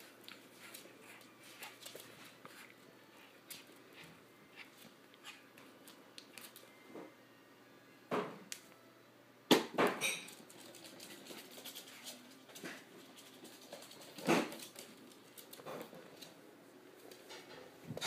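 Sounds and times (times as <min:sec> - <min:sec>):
puppy paws pattering on wood: 0:00.0 - 0:06.7, 0:10.2 - 0:16.4.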